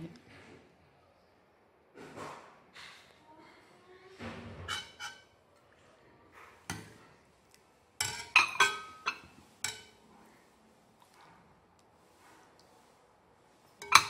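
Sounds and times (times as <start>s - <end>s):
metal ladle clinking in bowl: 8.0s - 10.0s, 13.8s - 14.0s.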